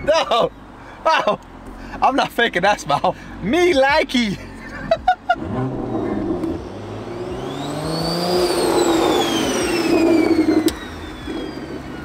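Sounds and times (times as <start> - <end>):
car accelerating past: 5.4 - 11.8
turbo whine: 5.4 - 12.0.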